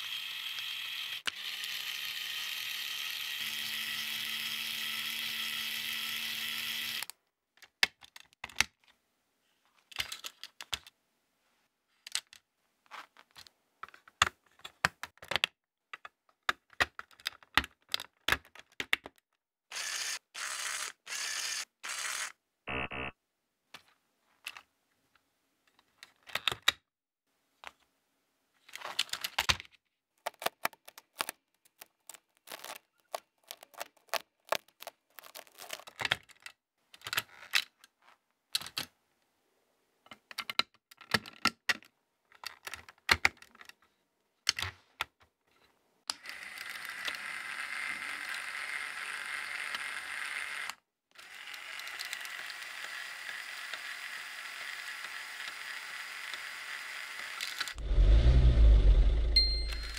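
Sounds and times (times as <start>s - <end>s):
small electric motor whirring: 0.0s - 7.1s, 19.7s - 22.4s, 46.2s - 59.9s
plastic parts clicking and tapping: 7.0s - 9.0s, 9.8s - 11.0s, 12.0s - 19.4s, 25.7s - 26.8s, 28.6s - 39.0s, 40.0s - 45.2s.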